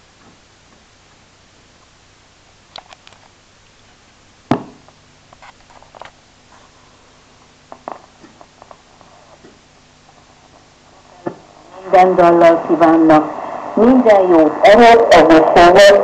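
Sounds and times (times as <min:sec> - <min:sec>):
radio crackles and clicks: 0:00.0 - 0:16.0
radio hum: 0:00.0 - 0:16.0.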